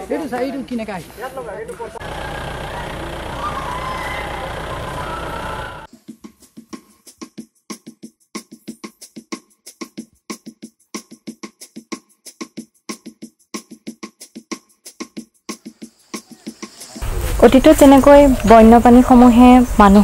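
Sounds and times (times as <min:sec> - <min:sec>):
quick percussion music: 0:05.9 - 0:19.8.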